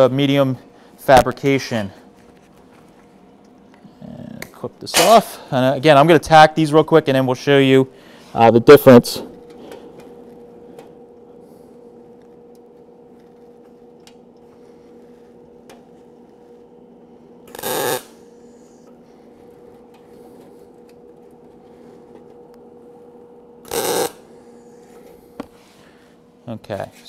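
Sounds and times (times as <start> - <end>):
welding arc crackling: 12.0 - 21.3, 23.6 - 24.3.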